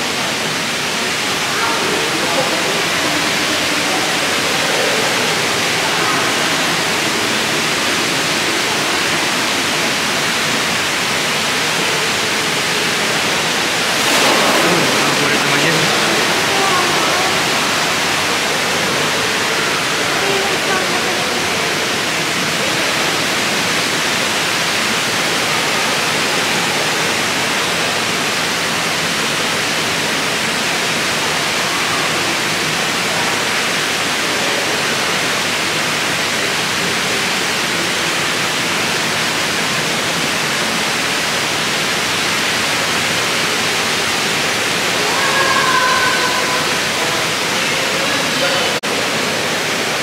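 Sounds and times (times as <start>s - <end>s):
faint voices: 0.0s - 24.2s, 42.8s - 50.0s
falling water rushing: 0.0s - 50.0s.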